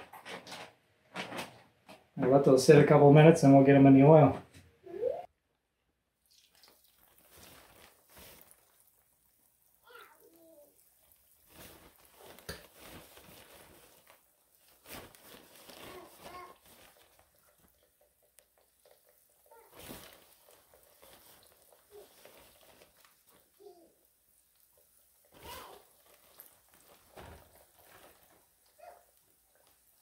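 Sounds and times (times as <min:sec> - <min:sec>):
oil crackling: 0:06.2 - 0:30.0
fish frying in oil: 0:06.3 - 0:12.7, 0:16.9 - 0:30.0.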